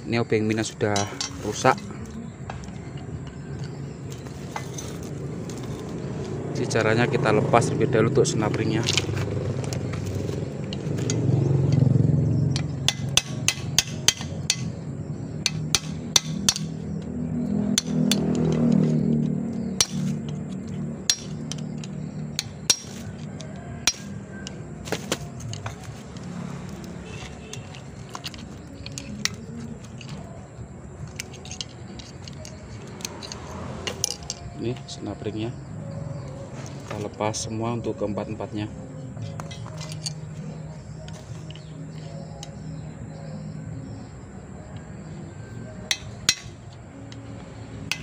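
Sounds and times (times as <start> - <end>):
screwdriver clicking and scraping metal: 19.8 - 30.3, 31.0 - 34.9, 39.2 - 40.4, 41.0 - 42.6.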